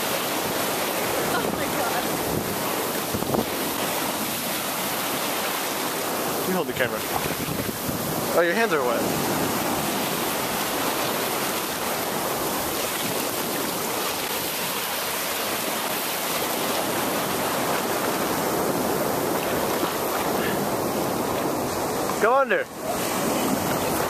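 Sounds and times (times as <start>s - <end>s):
ocean waves breaking: 0.0s - 24.0s.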